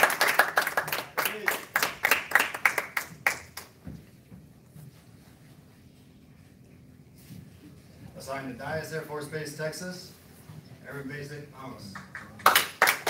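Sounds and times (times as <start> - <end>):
audience applauding: 0.0 - 3.7, 12.0 - 13.0.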